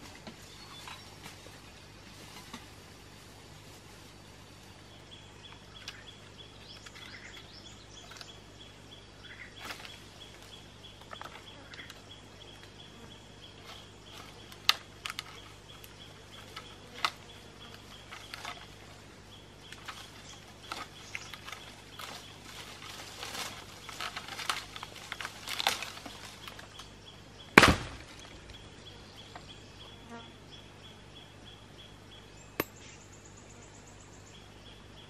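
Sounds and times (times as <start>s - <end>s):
rustling leaves and twigs: 0.0s - 35.0s
pole knocking branches: 19.7s - 26.9s, 27.6s - 28.6s.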